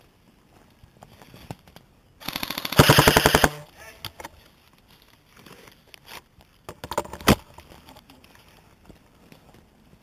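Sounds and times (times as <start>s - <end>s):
airsoft rifle automatic burst: 2.2s - 3.7s.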